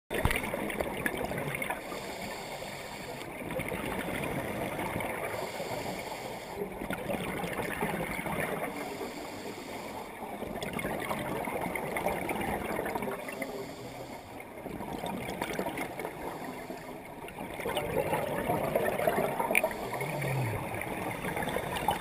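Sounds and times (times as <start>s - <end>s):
exhaled bubbles gurgling: 0.1s - 22.0s
scuba regulator breathing underwater: 1.8s - 3.3s, 5.2s - 6.7s, 8.6s - 10.2s, 13.2s - 14.5s, 18.2s - 22.0s.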